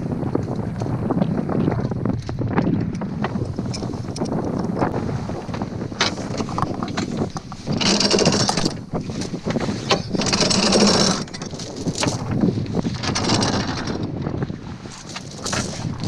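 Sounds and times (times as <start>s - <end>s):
wind noise on microphone: 0.0s - 16.0s
anchor chain rattling: 6.0s - 14.1s, 15.0s - 16.0s.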